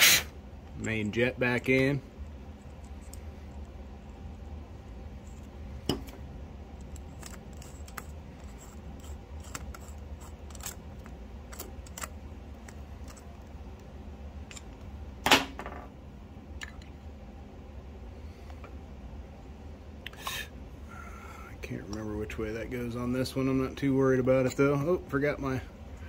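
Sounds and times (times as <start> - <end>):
low steady hum: 0.0 - 26.0
screwdriver clicking and scraping metal: 6.8 - 13.9.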